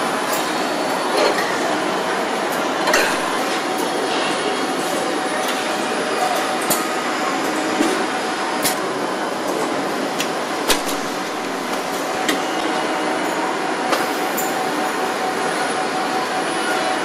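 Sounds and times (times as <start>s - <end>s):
assembly-line machinery running: 0.0s - 17.0s.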